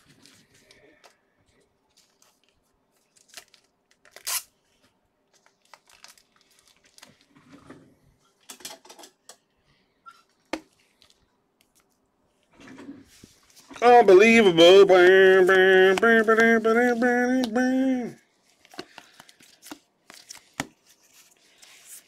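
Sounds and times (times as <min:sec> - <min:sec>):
foil wrapper crinkling and tearing: 0:01.9 - 0:04.6, 0:05.3 - 0:07.3.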